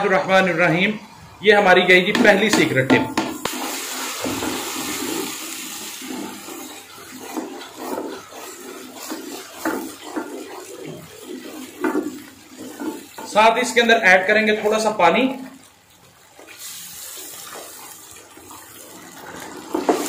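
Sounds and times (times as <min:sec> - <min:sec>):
oil sizzling: 0:01.0 - 0:20.0
spoon stirring wet paste: 0:05.8 - 0:15.1.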